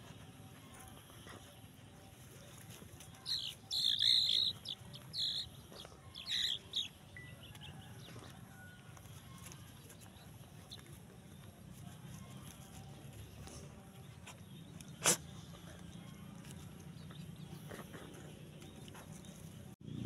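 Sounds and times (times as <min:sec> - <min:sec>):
bird chirping: 0:03.2 - 0:07.8.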